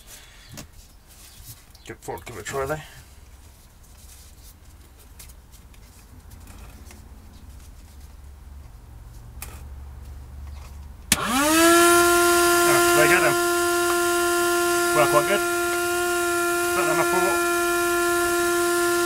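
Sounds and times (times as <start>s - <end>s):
vacuum motor high whine: 11.1s - 19.0s.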